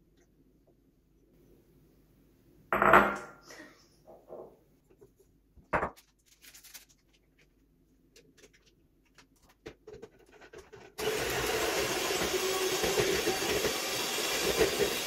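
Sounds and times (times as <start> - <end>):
electric hand mixer running: 11.0 - 15.0.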